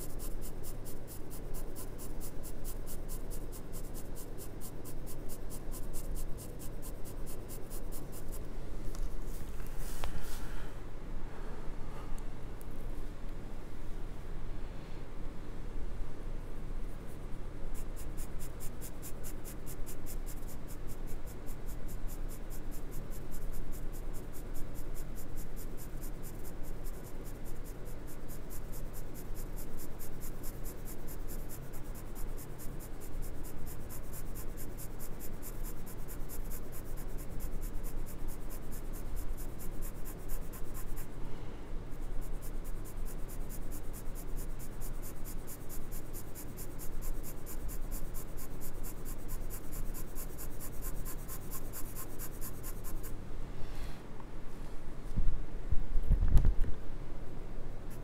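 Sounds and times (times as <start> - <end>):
pencil scratching on paper: 0.0 - 8.5, 17.0 - 41.2, 41.9 - 53.2.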